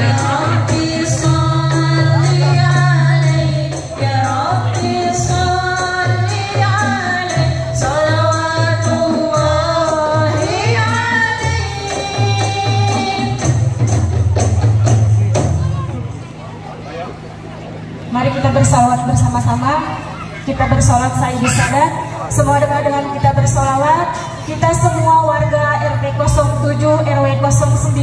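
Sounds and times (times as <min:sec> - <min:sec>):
person singing a melody: 0:00.0 - 0:13.6
jingling percussion: 0:00.0 - 0:17.3
frame drums: 0:00.0 - 0:28.0.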